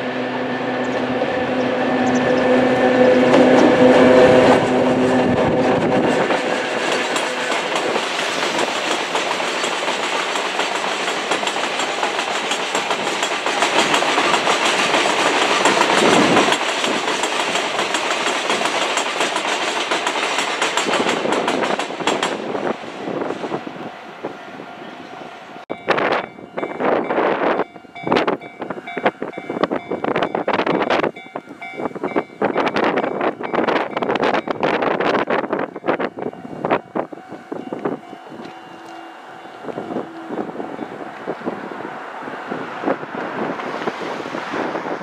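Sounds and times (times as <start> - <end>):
electric locomotive hum: 0.0 - 45.0
train wheels clattering over rail joints: 3.2 - 23.6.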